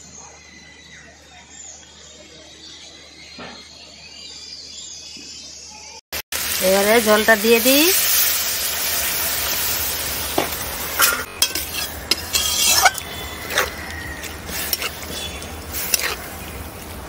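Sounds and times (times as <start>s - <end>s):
curry sizzling in wok: 6.2s - 17.0s
metal spatula scraping wok: 10.8s - 17.0s.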